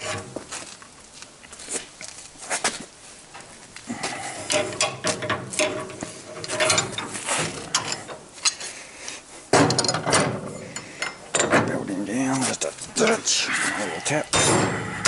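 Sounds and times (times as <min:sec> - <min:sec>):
metal rod clanking in a vise: 0:04.5 - 0:08.6, 0:09.6 - 0:11.7.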